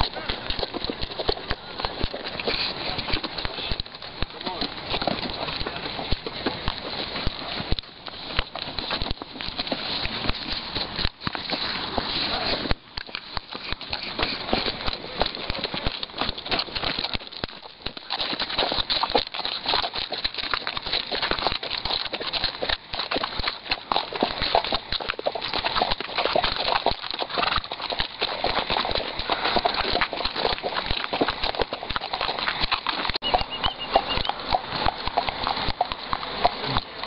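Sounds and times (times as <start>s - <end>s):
horse hooves on hard ground: 0.0s - 37.0s.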